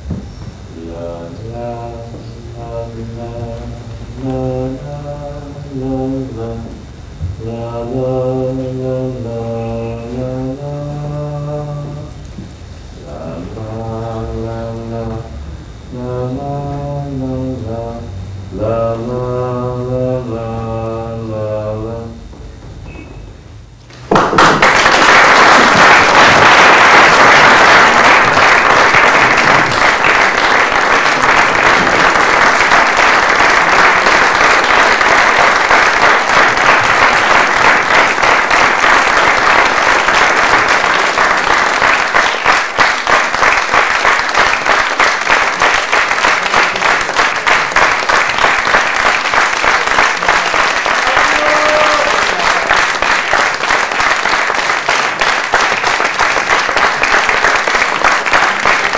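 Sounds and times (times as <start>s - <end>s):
audience applauding: 23.9s - 58.9s.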